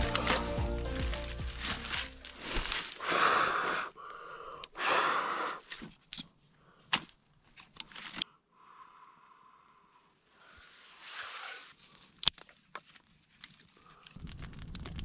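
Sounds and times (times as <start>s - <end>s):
rustling: 0.0s - 4.5s, 5.6s - 8.2s, 10.4s - 15.0s
man breathing wheezily: 2.9s - 5.7s.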